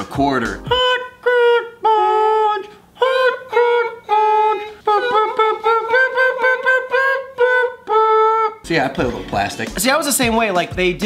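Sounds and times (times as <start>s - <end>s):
man tooting tune in falsetto: 0.7s - 8.7s.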